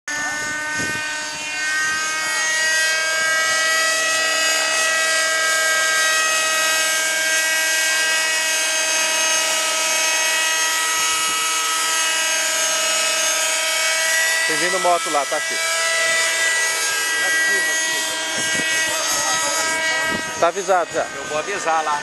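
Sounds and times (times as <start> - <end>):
model helicopter whine: 0.1 - 22.0.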